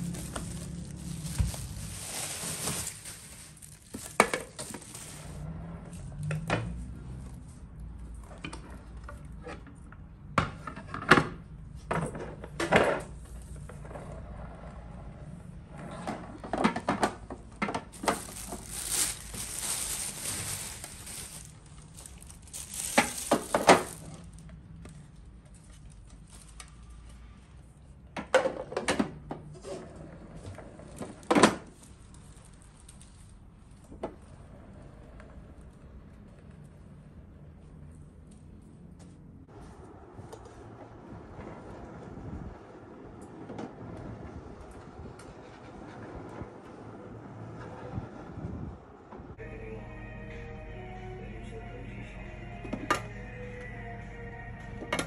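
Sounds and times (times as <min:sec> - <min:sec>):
rustling: 0:00.0 - 0:05.5, 0:17.9 - 0:26.8.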